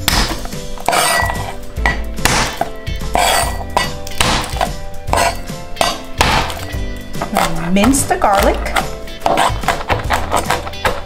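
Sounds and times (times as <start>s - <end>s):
background music: 0.0s - 11.0s
utensil scraping a mixing bowl: 0.9s - 1.6s, 3.1s - 3.8s, 5.1s - 5.9s, 7.2s - 11.0s.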